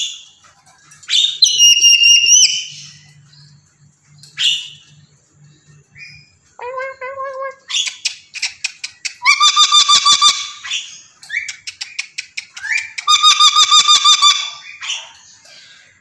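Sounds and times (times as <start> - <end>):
parrot calling: 6.1 - 15.2.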